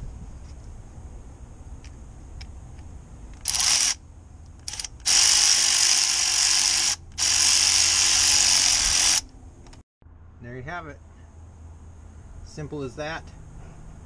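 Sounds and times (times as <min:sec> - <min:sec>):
electric ratchet running: 0:03.4 - 0:04.0, 0:04.6 - 0:09.3.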